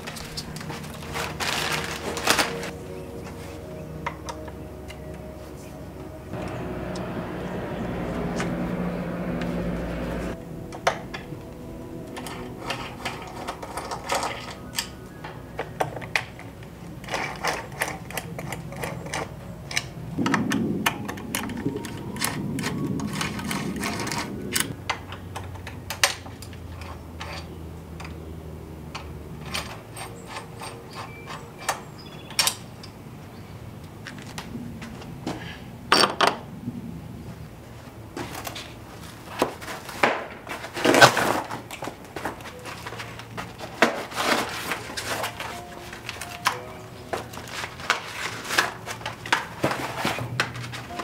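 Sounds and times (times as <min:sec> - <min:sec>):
rustling: 0:00.0 - 0:04.0, 0:37.6 - 0:51.0
low steady hum: 0:00.0 - 0:32.0
metal tools clicking and tapping: 0:12.1 - 0:20.0, 0:28.9 - 0:33.0.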